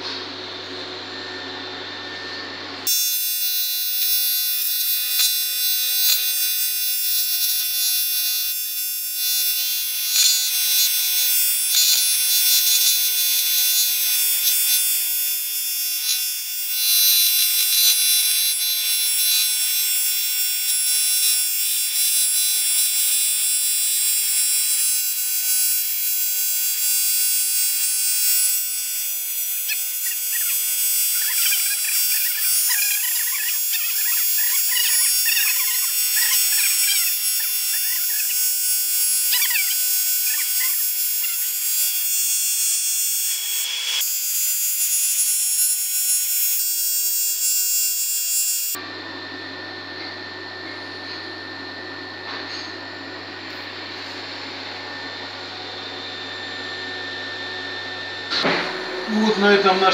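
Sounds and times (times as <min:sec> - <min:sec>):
welding arc buzzing hiss: 0:02.8 - 0:48.8.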